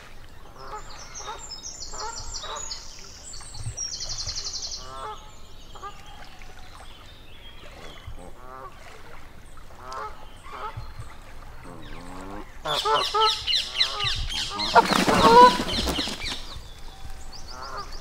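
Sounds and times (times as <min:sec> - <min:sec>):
geese honking: 0:12.6 - 0:16.2.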